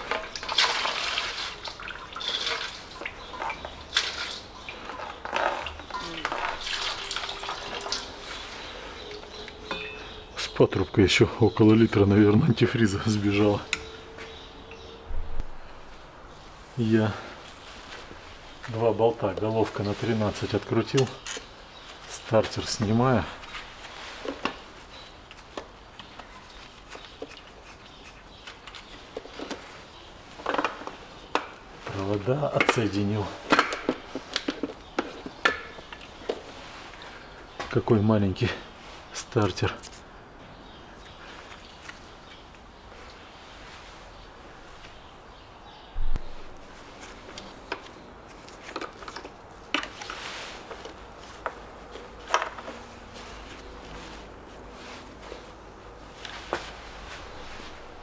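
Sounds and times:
rustling scrape: 0:04.4 - 0:10.4, 0:15.8 - 0:18.6, 0:49.9 - 0:58.0.

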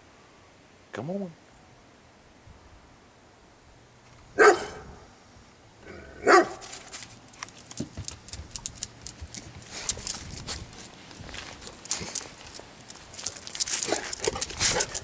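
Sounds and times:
dog barking: 0:04.4 - 0:05.0, 0:05.9 - 0:06.7
dogs' claws clicking and scuffling: 0:06.4 - 0:15.0.

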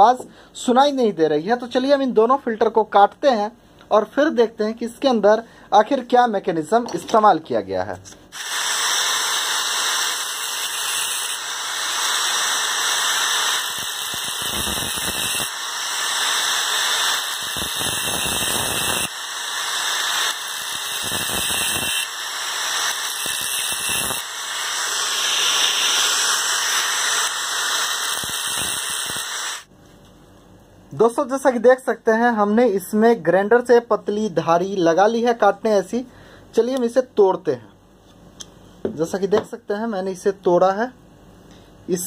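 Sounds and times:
angle grinder cutting metal: 0:08.4 - 0:29.7.

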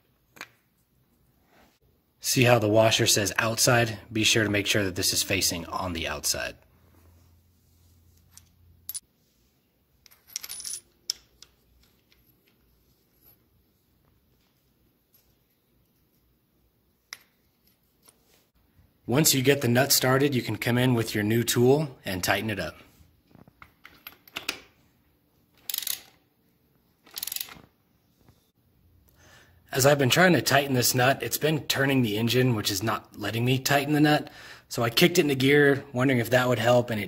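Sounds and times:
socket ratchet clicking: 0:25.6 - 0:26.2, 0:27.1 - 0:27.6.

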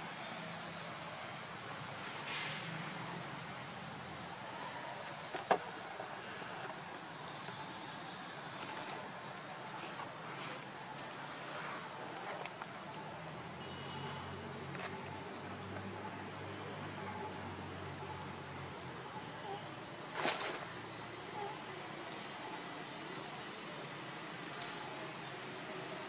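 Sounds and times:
background hiss: 0:00.0 - 0:14.7.

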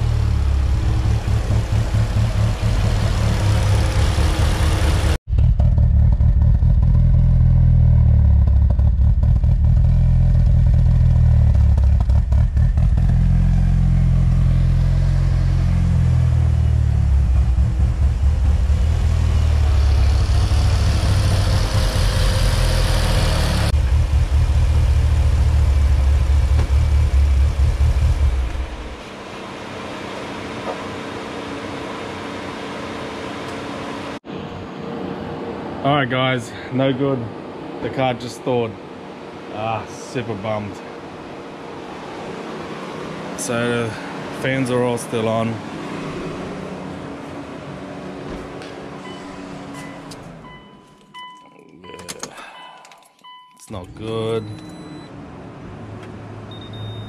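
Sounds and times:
car engine idling: 0:00.0 - 0:29.9.

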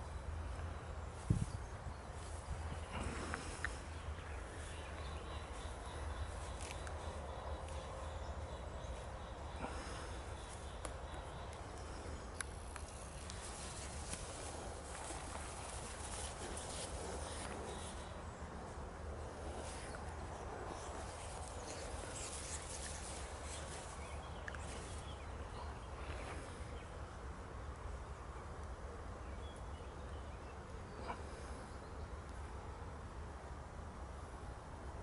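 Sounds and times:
hedgehogs scuffling in grass: 0:00.0 - 0:26.6
steady low hum: 0:00.0 - 0:35.0.

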